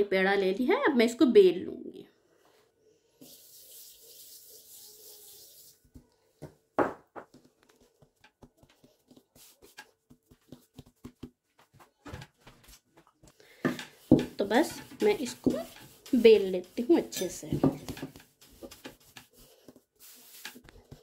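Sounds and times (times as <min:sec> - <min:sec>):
hand rubbing flour on worktop: 0:03.2 - 0:06.1, 0:07.7 - 0:11.4, 0:13.7 - 0:21.0.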